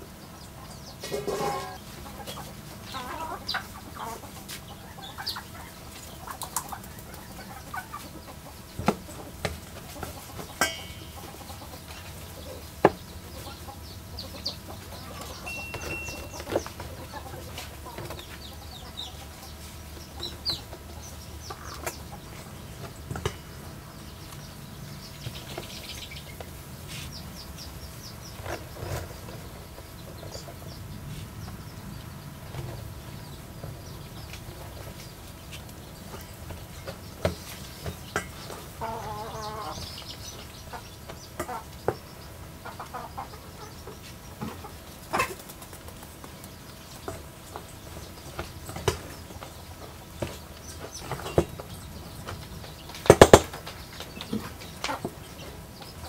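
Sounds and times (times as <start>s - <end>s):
chickens clucking: 0.0s - 56.0s
metal spoon knocking on steel bowl: 10.6s - 11.2s.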